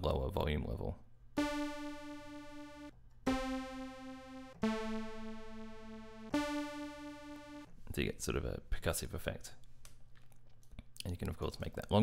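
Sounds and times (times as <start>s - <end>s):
synthesizer notes: 1.4s - 7.7s.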